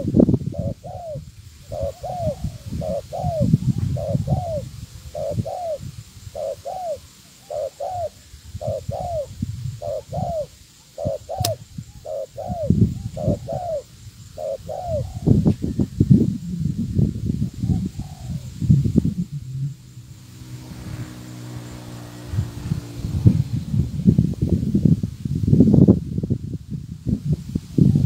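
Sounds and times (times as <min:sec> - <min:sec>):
dove cooing: 0:00.0 - 0:15.8, 0:17.5 - 0:23.6
sharp click: 0:11.4 - 0:11.6
low rumbling noise: 0:18.4 - 0:27.2.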